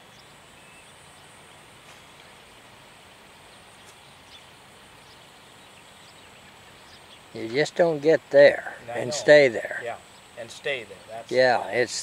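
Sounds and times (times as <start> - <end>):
faint bird chirps: 0.0 - 2.6, 3.3 - 7.7.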